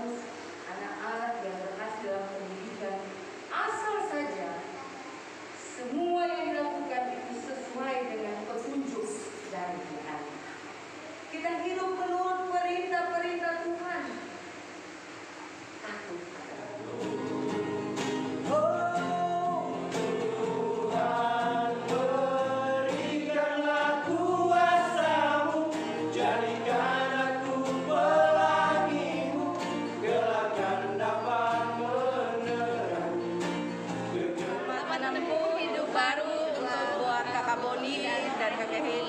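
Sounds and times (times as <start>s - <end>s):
acoustic guitar strummed: 16.8s - 34.8s
men singing together: 16.8s - 35.7s.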